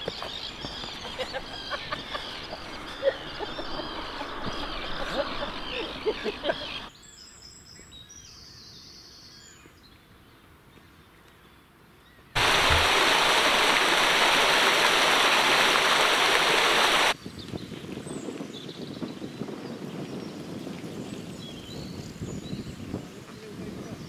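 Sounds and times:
water pouring over a weir: 12.4 - 17.2.

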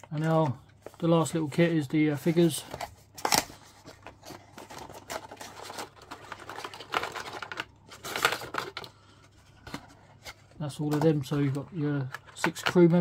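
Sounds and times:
plastic boxes clicking and tapping: 10.8 - 13.0.

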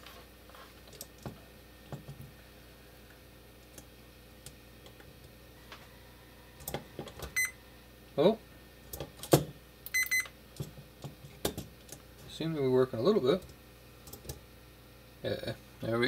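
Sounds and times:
meter continuity beep chirp: 7.3 - 7.6, 9.9 - 10.4.

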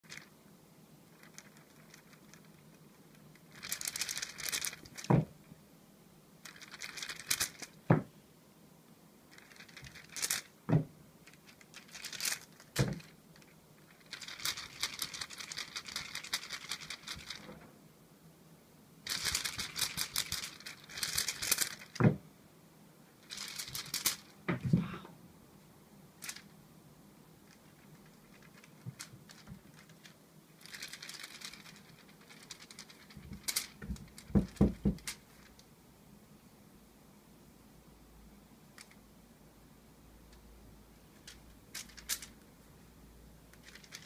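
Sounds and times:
feather toy rustling: 1.1 - 5.3, 6.4 - 8.1, 9.3 - 17.6, 19.0 - 22.2, 23.2 - 24.9, 26.2 - 26.5, 27.4 - 35.6, 41.2 - 42.4, 43.6 - 44.0.

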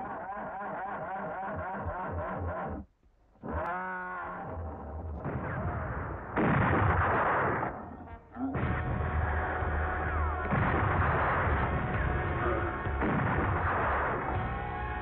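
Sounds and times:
gunfire: 5.2 - 7.9, 8.6 - 15.0.

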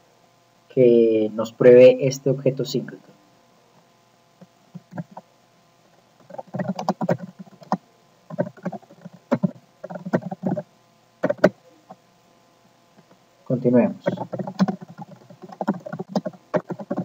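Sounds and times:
keyboard typing: 4.7 - 5.2, 6.2 - 10.6, 11.2 - 11.6, 14.0 - 17.0.

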